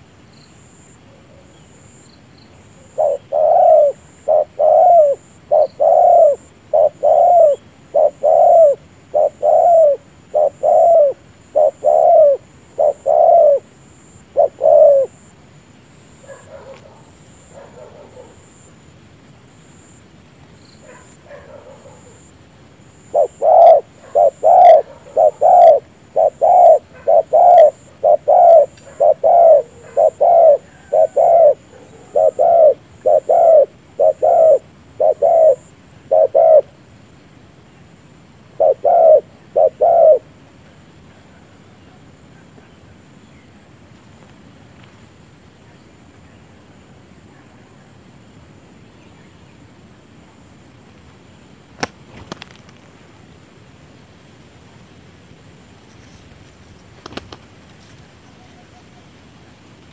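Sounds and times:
dove cooing: 0:02.8 - 0:15.3, 0:23.0 - 0:36.8, 0:38.6 - 0:40.4.

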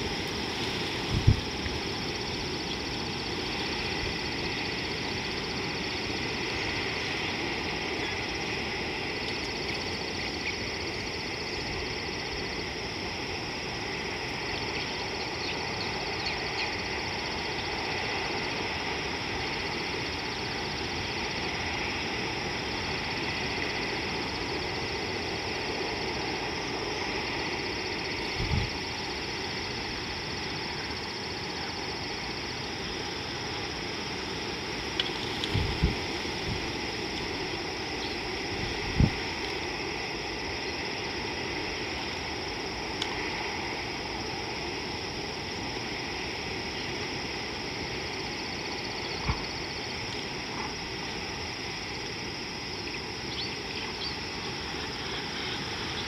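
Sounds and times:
even hiss: 0:00.0 - 0:56.0.

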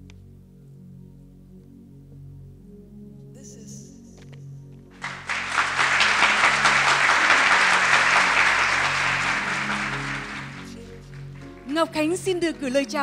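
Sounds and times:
soft background music: 0:00.0 - 0:13.0
audience applauding: 0:05.0 - 0:12.2.

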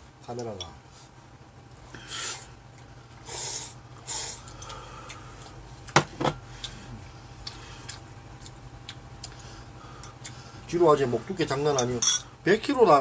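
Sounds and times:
small clicks of eating: 0:04.4 - 0:06.0, 0:07.4 - 0:09.4.

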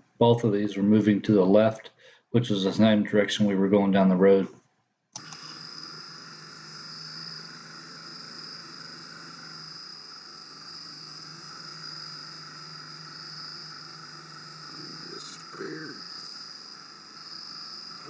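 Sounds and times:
insects trilling: 0:05.2 - 0:18.0
faint low hum: 0:05.6 - 0:18.0.

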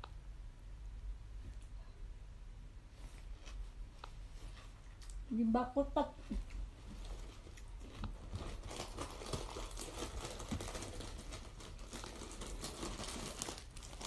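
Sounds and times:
chewing crunchy food: 0:06.4 - 0:14.0.

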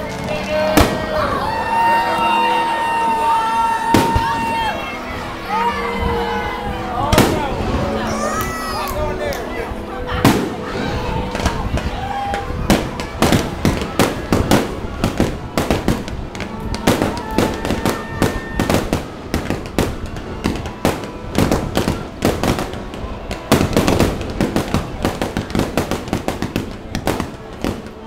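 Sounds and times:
fireworks launching and bursting: 0:00.0 - 0:01.4, 0:03.8 - 0:05.3, 0:07.1 - 0:08.1, 0:10.1 - 0:28.0.

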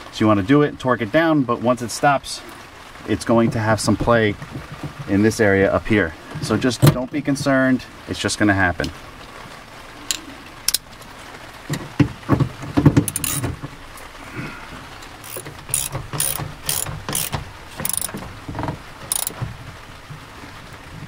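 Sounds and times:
ratchet wrench clicking: 0:13.1 - 0:13.5, 0:15.2 - 0:18.2, 0:19.1 - 0:19.4.

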